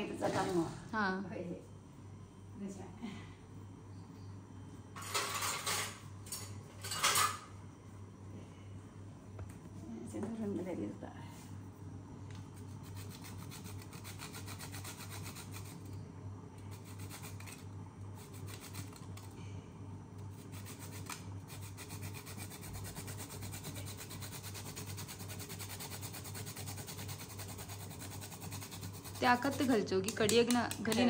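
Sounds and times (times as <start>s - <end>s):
low steady hum: 0.0s - 31.0s
nutmeg scraping on metal grater: 12.7s - 15.8s, 16.8s - 17.6s, 18.2s - 19.3s, 20.4s - 29.9s.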